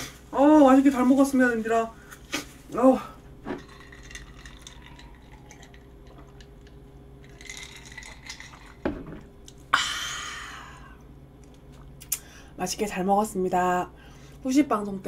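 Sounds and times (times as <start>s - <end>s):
person sipping and swallowing: 3.5s - 6.8s
long breathy exhale: 9.7s - 11.0s.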